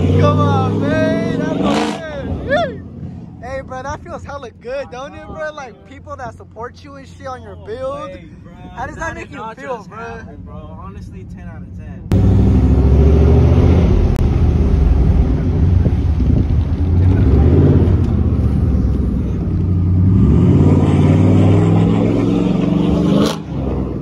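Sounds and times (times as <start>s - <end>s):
truck engine accelerating: 0.0s - 3.9s, 12.1s - 24.0s.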